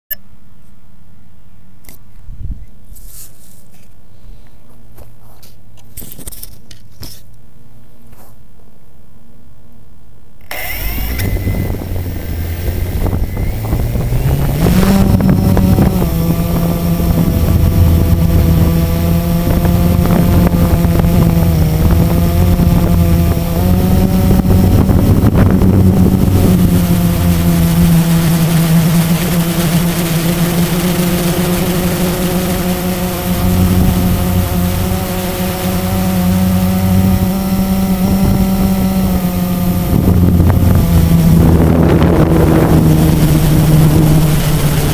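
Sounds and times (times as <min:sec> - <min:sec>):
quadcopter motors buzzing: 0:10.4 - 0:44.9.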